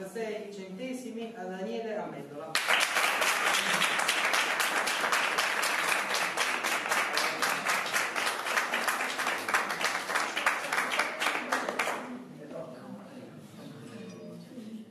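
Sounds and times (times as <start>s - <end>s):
audience applauding: 2.6s - 12.1s.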